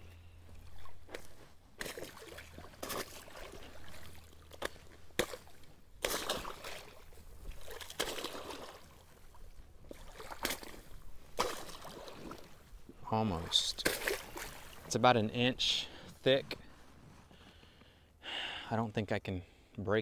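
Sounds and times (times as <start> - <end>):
water and slush sloshing: 0.4 - 15.1.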